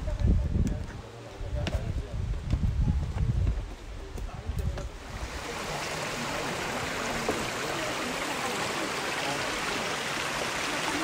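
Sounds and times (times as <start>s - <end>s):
stream flowing over stones: 5.0s - 11.0s.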